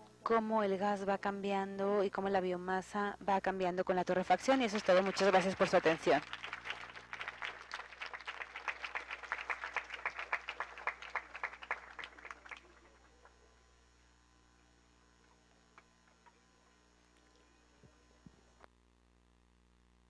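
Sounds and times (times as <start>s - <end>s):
audience applauding: 4.2s - 13.5s.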